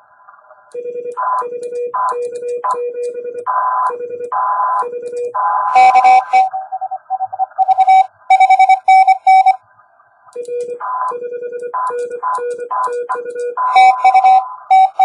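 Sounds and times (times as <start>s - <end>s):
morse code tone: 0.8s - 6.5s, 7.2s - 9.6s, 10.4s - 15.0s
lower-pitched morse signal: 5.7s - 6.5s, 7.6s - 9.6s, 13.7s - 15.0s.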